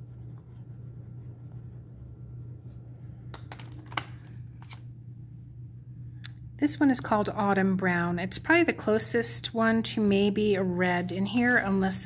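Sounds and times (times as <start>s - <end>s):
pencil scratching on paper: 0.0s - 2.4s
low steady hum: 0.0s - 12.0s.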